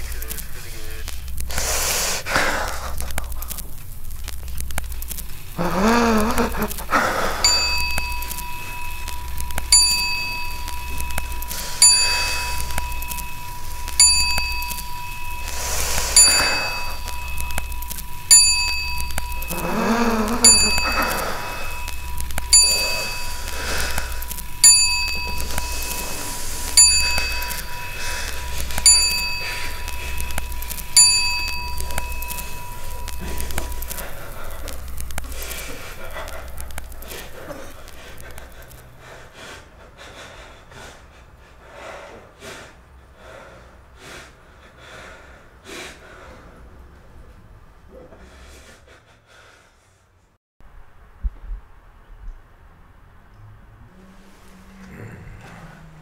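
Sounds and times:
steady high tone: 0.0s - 38.9s
low steady hum: 0.0s - 39.0s
bell-like chime: 4.9s - 38.8s
wavering voice-like wail: 5.5s - 38.8s.

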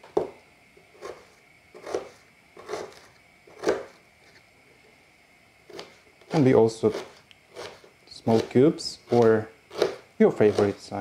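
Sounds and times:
knife cutting onion on board: 0.9s - 4.0s, 5.6s - 11.0s.

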